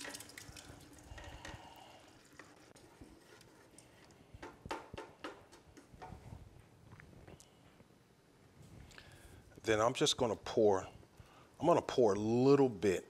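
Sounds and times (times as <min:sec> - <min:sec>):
wooden spatula tapping metal pot: 0:04.4 - 0:06.2.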